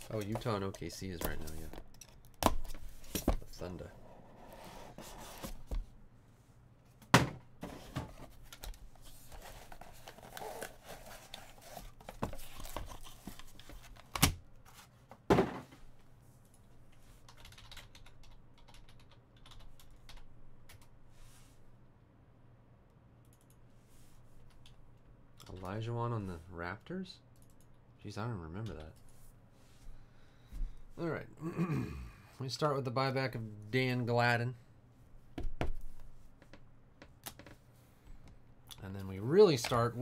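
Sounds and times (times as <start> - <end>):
cardboard packaging rustling: 8.2 - 14.0.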